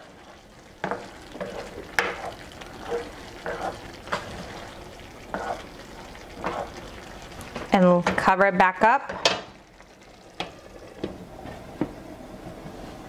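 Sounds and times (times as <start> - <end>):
rice sizzling: 0.0 - 13.0
spoon scraping and knocking pan: 0.8 - 4.6, 5.3 - 5.7, 6.4 - 6.8.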